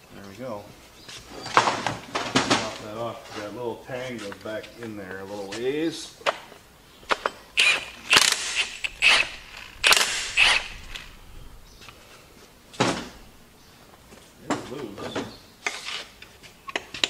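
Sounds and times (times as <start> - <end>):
wrench clicks: 7.6 - 11.1
wrench noisy bursts: 7.6 - 11.3.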